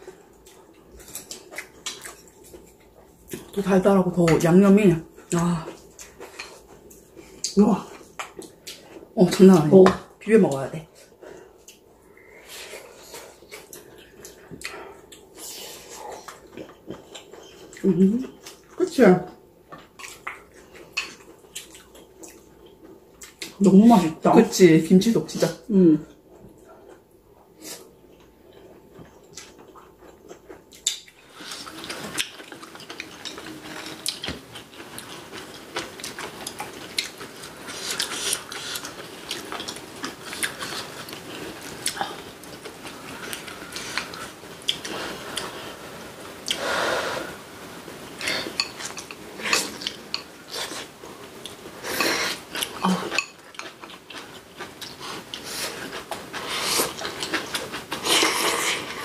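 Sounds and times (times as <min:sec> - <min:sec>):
close chewing: 0:00.0 - 0:03.7, 0:05.1 - 0:09.2, 0:19.6 - 0:23.6, 0:26.3 - 0:45.8, 0:48.1 - 0:59.0.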